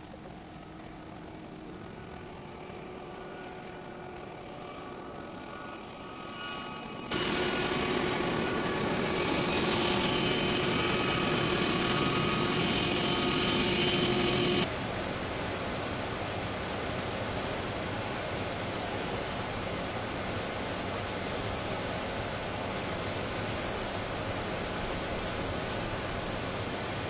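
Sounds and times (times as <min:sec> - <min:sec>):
jet engines whining: 0:01.9 - 0:14.7.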